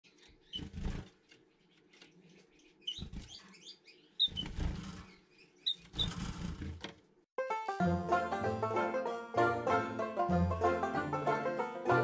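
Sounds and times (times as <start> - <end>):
wings fluttering: 0.3 - 3.5, 4.2 - 7.0.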